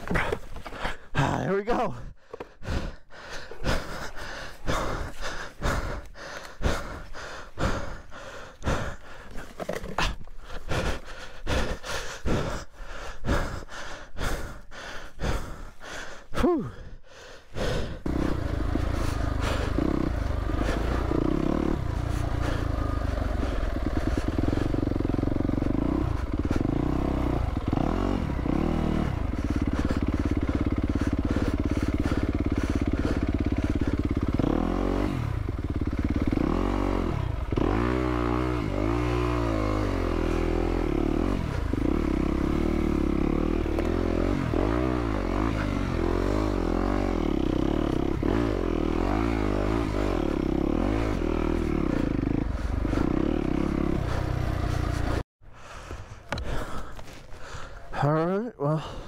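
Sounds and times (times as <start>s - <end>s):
dirt bike engine running: 0.0s - 16.8s, 17.6s - 59.0s.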